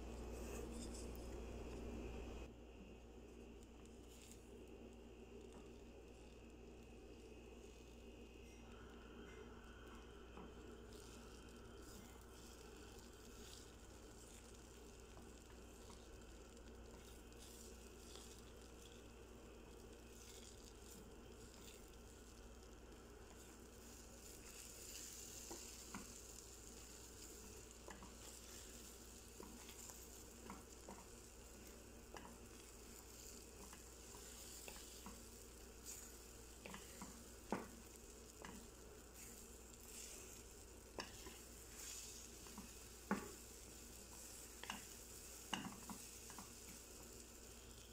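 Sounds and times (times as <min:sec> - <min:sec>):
spatula stirring and scraping: 0:00.0 - 0:02.5, 0:03.8 - 0:04.6, 0:10.4 - 0:47.9
eggs sizzling in a frying pan: 0:00.0 - 0:47.9
spatula tapping on pan: 0:36.6 - 0:37.8, 0:43.1 - 0:43.4, 0:45.5 - 0:46.4.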